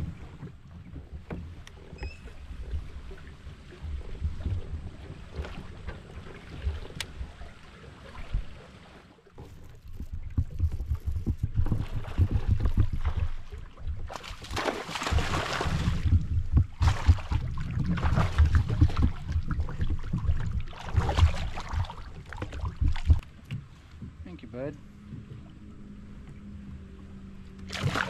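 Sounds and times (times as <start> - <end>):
water slapping a kayak: 0.0 - 28.0
wind buffeting microphone: 9.4 - 24.4.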